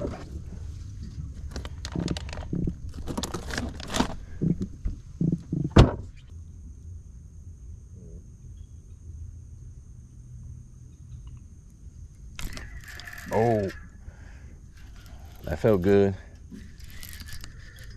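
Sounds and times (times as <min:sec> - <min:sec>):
fishing gear knocking and clattering: 0:01.5 - 0:04.8, 0:12.4 - 0:13.8, 0:14.8 - 0:17.9.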